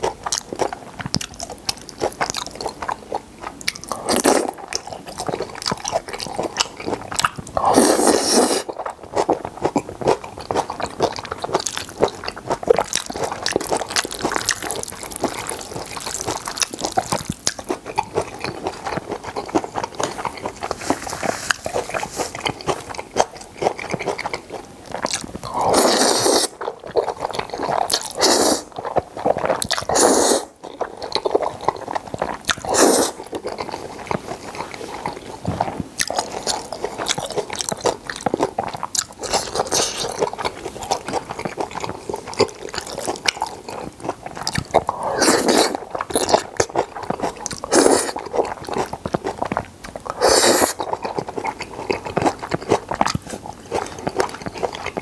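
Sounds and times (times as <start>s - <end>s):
wet chewing of noodles: 0.0s - 55.0s
noodle slurps: 7.6s - 8.8s, 25.5s - 28.7s, 29.3s - 30.6s, 31.6s - 37.4s, 44.3s - 48.6s, 50.1s - 55.0s.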